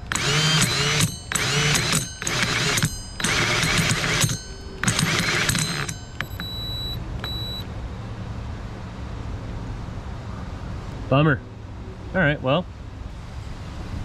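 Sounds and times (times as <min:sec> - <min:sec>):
power drill motor spinning: 0:00.0 - 0:07.6.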